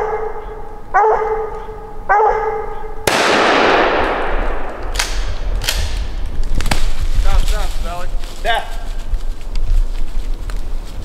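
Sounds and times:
dog barking: 0:00.0 - 0:03.0
gunshot with echo: 0:03.0 - 0:06.0
sharp clicks: 0:03.1 - 0:06.8.

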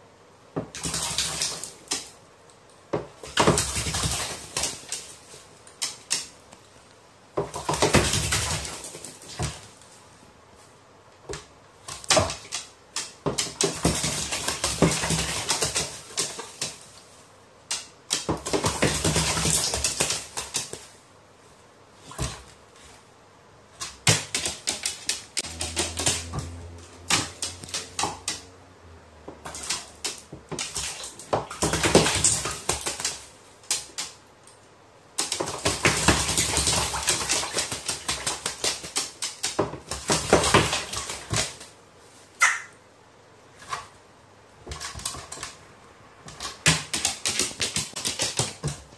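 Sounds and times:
low steady hum: 0:25.4 - 0:31.5
bird splashing in water: 0:29.3 - 0:34.1.

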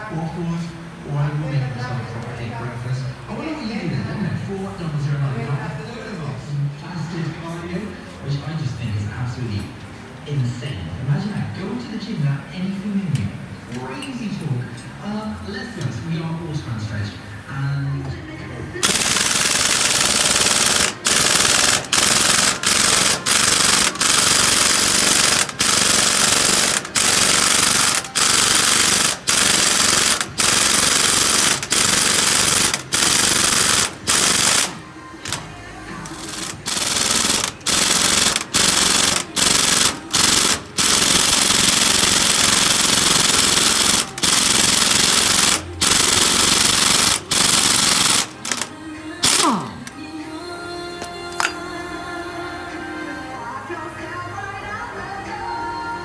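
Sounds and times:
pneumatic impact wrench hammering: 0:18.8 - 0:50.0, 0:51.0 - 0:51.6.

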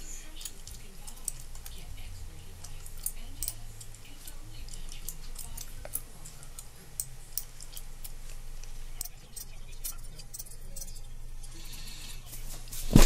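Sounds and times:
mouse and keyboard clicking: 0:02.6 - 0:08.4.

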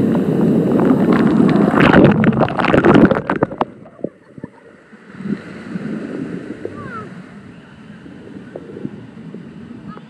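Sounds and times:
water splashing onto river: 0:00.0 - 0:07.5.

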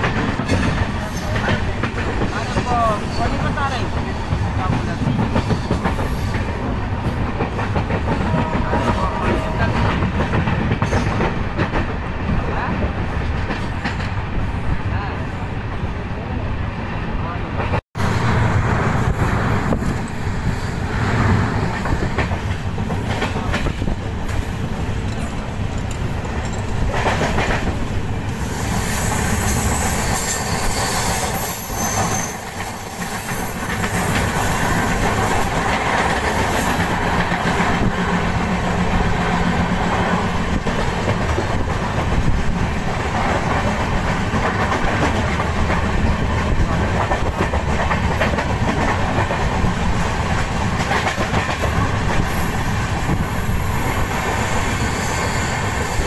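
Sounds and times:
train wheels clattering over rail joints: 0:00.0 - 0:12.0, 0:21.0 - 0:28.0, 0:33.6 - 0:56.0
passing train rushing rattle: 0:00.0 - 0:56.0.

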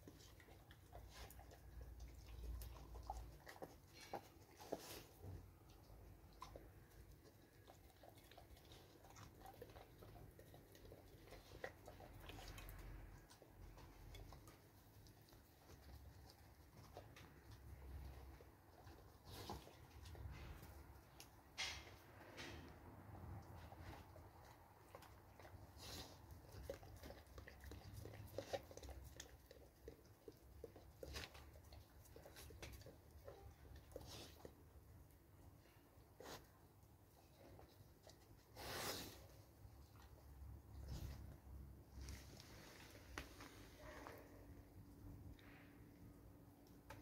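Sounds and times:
dog eating from metal bowl: 0:00.0 - 0:22.6, 0:23.4 - 0:35.1.

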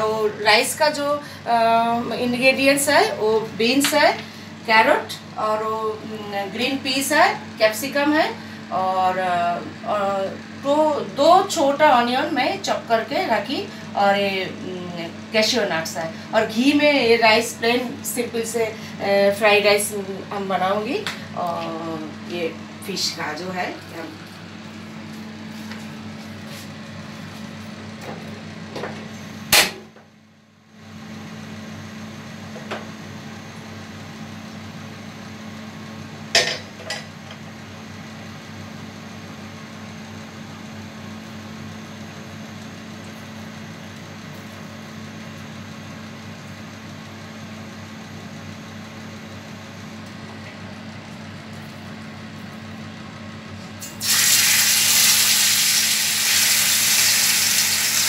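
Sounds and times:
steady low hum: 0:00.0 - 0:54.1
fish sizzling in hot oil: 0:54.0 - 0:58.0.

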